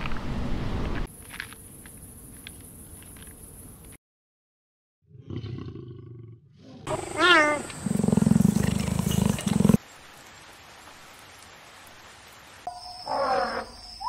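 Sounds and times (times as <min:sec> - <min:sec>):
lion growling: 0:05.1 - 0:09.8
cheetah fast-pulsing growl: 0:07.8 - 0:09.8.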